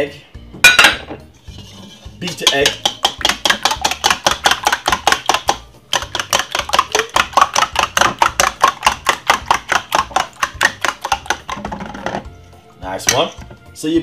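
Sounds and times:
whisk clicking against bowl: 2.3 - 12.2.

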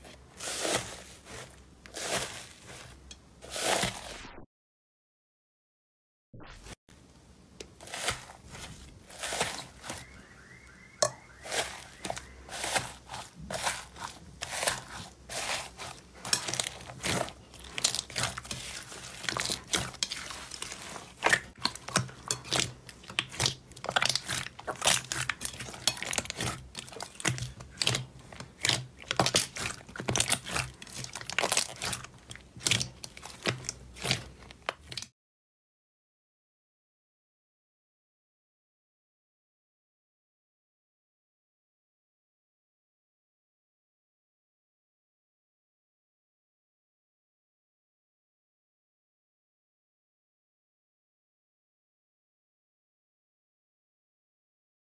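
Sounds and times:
slime crust crunching: 0.3 - 4.2, 7.7 - 10.3, 11.3 - 35.1
sticky slime popping: 11.5 - 35.0.

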